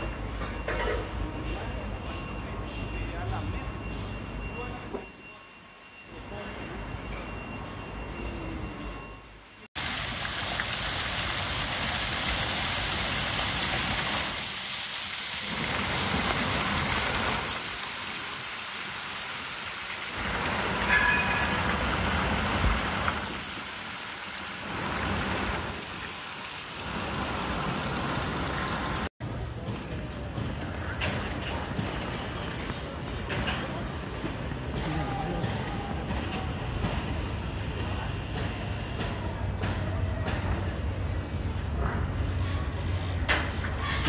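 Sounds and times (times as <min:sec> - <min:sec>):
street sound: 0:00.0 - 0:44.0
fountain water splashing: 0:09.8 - 0:29.1.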